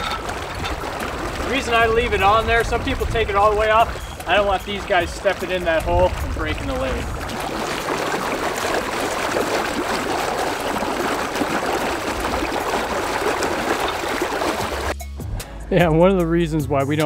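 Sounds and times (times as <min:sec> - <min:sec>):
water gushing and bubbling: 0:00.0 - 0:15.0.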